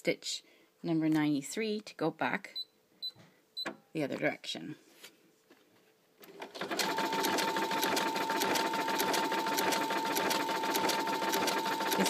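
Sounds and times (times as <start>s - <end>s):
sewing machine running: 6.3s - 12.0s.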